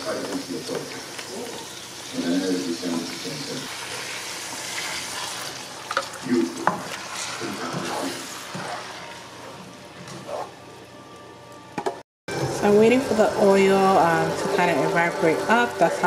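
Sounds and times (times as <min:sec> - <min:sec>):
onions sizzling in oil: 0:00.0 - 0:10.5.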